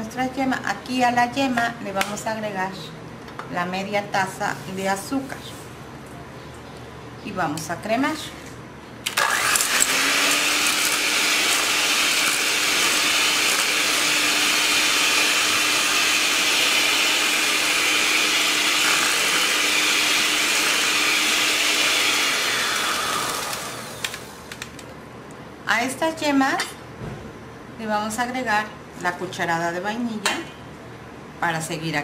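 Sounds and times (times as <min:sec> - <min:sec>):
electric hand mixer whirring: 0:09.1 - 0:24.6.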